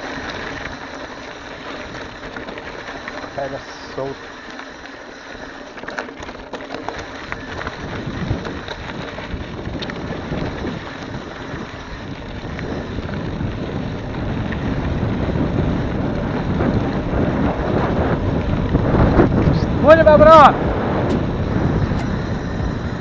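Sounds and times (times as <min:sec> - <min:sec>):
wind buffeting microphone: 0:07.0 - 0:23.0.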